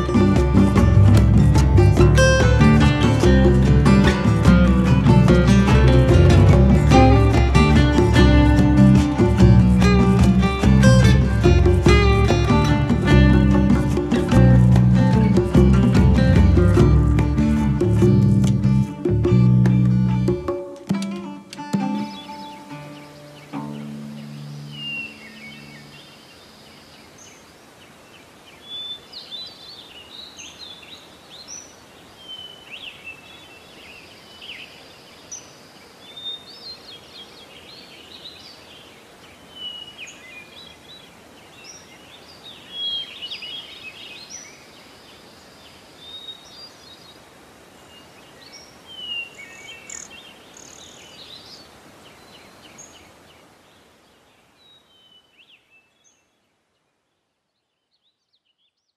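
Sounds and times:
steady outdoor hiss: 0:00.0 - 0:58.9
small birds chirping: 0:21.6 - 0:58.9.

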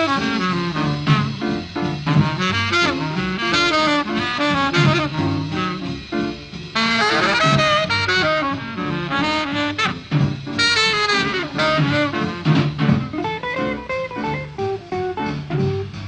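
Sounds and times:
saxophone melody: 0:00.0 - 0:01.4, 0:02.1 - 0:06.1, 0:06.8 - 0:13.1
jazz bass line: 0:00.0 - 0:16.0.

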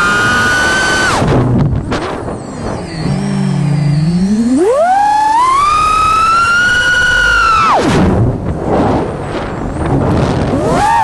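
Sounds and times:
quadcopter motors whining: 0:00.0 - 0:08.0, 0:10.4 - 0:11.0.

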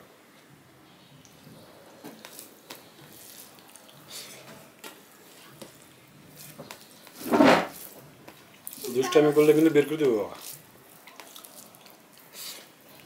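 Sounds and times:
rice squishing mixed by hand: 0:01.5 - 0:13.0.

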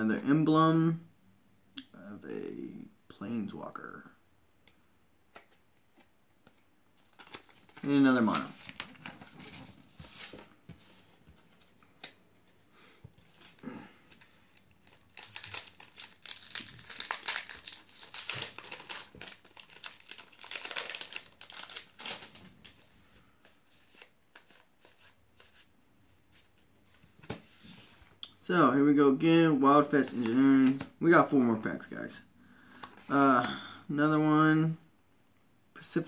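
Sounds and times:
foil wrapper tearing and crinkling: 0:14.6 - 0:22.4.

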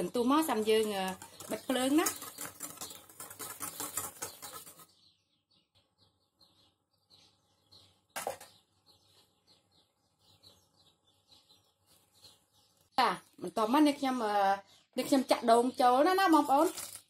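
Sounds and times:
bird chirping: 0:00.0 - 0:17.0
whisk stirring liquid in metal pot: 0:00.5 - 0:04.8.

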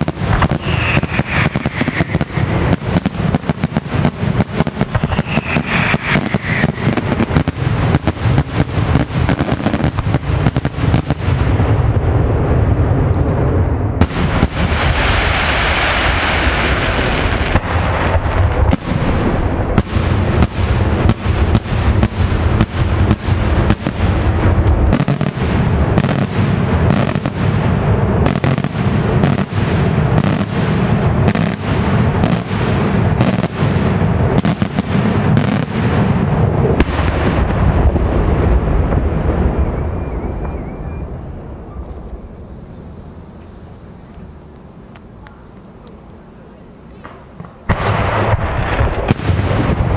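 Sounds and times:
firework shells bursting: 0:00.0 - 0:11.1
hissing crackle of fireworks: 0:00.0 - 0:49.9.

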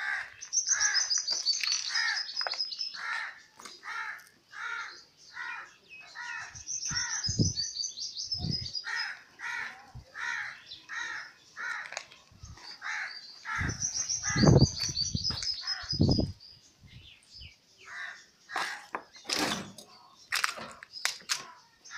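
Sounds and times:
crows cawing: 0:00.0 - 0:01.2, 0:01.8 - 0:07.3, 0:08.9 - 0:12.0, 0:12.8 - 0:14.5, 0:15.6 - 0:16.0, 0:17.8 - 0:19.0
small birds twittering: 0:00.0 - 0:21.9.

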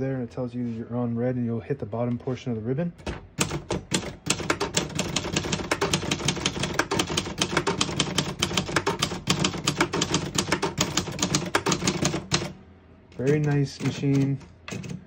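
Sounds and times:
manual typewriter typing: 0:03.0 - 0:15.0.

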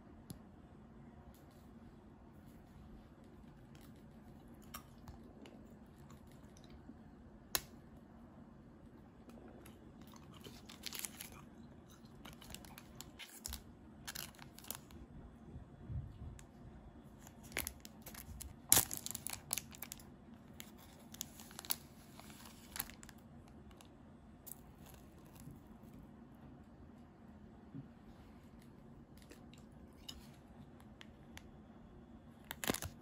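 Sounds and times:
dry snack tearing: 0:10.0 - 0:15.0, 0:17.2 - 0:23.8, 0:32.4 - 0:33.0
plastic wrapper crinkling: 0:10.1 - 0:15.0, 0:17.2 - 0:23.9, 0:32.4 - 0:33.0.

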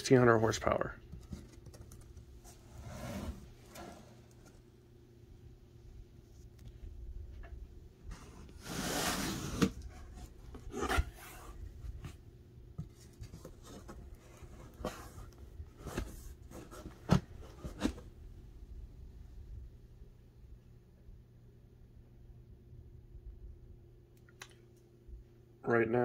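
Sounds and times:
cardboard box flaps scraping: 0:08.2 - 0:11.6.

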